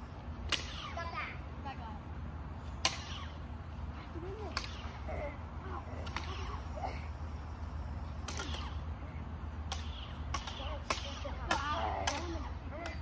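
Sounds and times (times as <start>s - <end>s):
lightsaber blades clashing: 0.5s - 1.0s, 2.8s - 3.4s, 4.5s - 5.3s, 8.2s - 8.8s, 9.7s - 13.0s.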